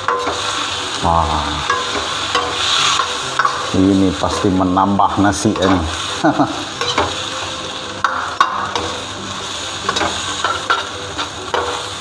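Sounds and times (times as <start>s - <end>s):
food sizzling: 0.0s - 12.0s
spatula scraping a steel wok: 1.6s - 4.5s, 5.5s - 7.2s, 8.0s - 12.0s.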